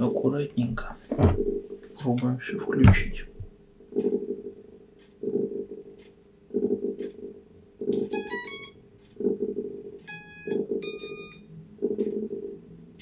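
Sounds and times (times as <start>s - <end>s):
drone motor power-up beeps: 8.1s - 8.8s, 10.1s - 11.6s.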